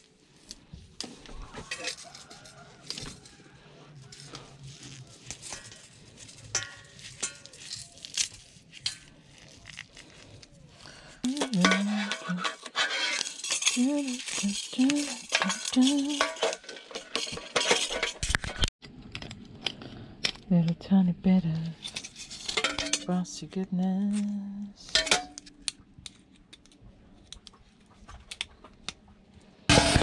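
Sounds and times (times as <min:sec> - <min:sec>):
metal scrap clinking: 0:01.5 - 0:03.4, 0:04.0 - 0:09.8, 0:11.2 - 0:19.2, 0:21.8 - 0:23.2, 0:24.1 - 0:25.7, 0:29.7 - 0:30.0
woman humming: 0:11.2 - 0:12.5.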